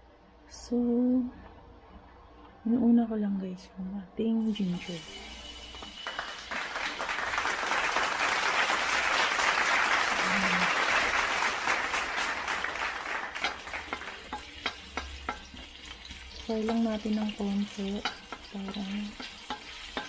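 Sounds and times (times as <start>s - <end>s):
food sizzling in hot oil: 13.4s - 20.0s.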